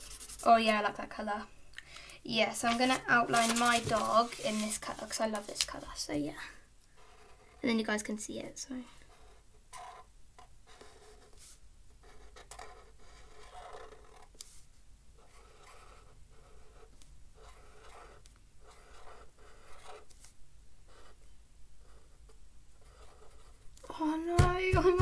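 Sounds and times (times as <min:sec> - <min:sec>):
felt-tip pen writing on paper: 0:12.0 - 0:14.3, 0:15.2 - 0:20.1, 0:22.8 - 0:23.6.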